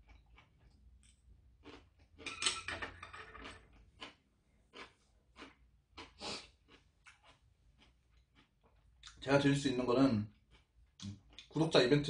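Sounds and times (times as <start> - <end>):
person slurping: 6.0 - 6.8.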